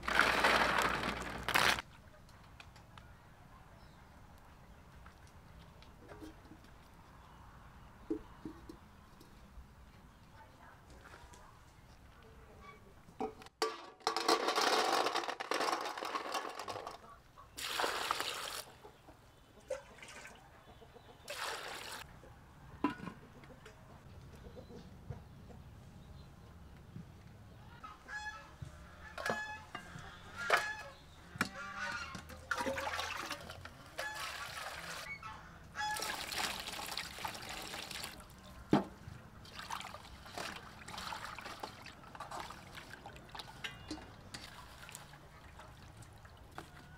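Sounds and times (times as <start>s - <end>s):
handling noises: 0.0s - 1.8s
snail shells rattling on metal: 13.9s - 17.0s
water splashing: 32.5s - 35.1s.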